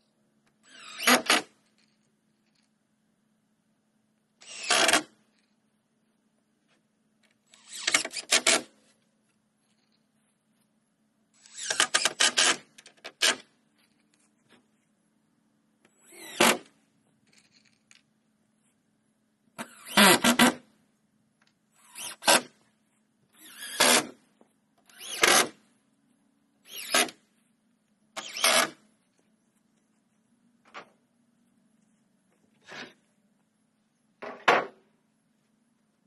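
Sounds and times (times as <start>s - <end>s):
cordless drill driving screws: 0.6s - 1.5s, 4.4s - 5.2s, 7.5s - 8.7s, 11.4s - 12.6s, 16.0s - 16.7s, 19.6s - 20.6s, 21.8s - 22.6s, 23.4s - 24.2s, 24.9s - 25.6s, 26.6s - 27.2s, 28.2s - 28.8s.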